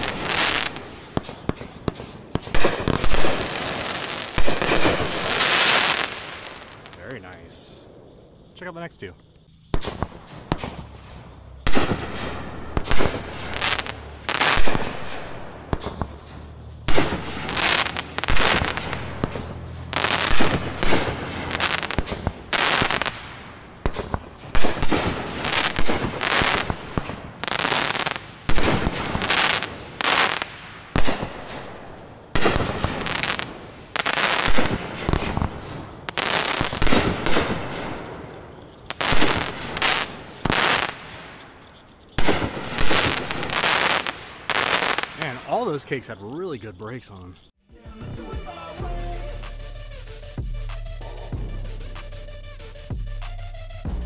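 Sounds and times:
firework crackling: 0.0 - 8.0, 9.7 - 46.0
firework launch thumps: 9.7 - 23.2.

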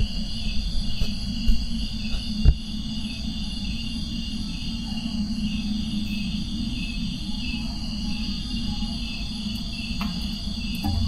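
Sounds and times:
insect chirring: 0.0 - 11.0
low hum: 10.6 - 11.0.

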